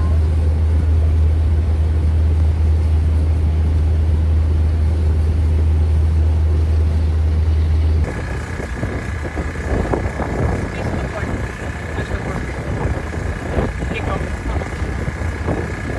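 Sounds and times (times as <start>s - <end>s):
boat engine drone: 0.0s - 15.9s
wind and water noise: 0.0s - 15.9s.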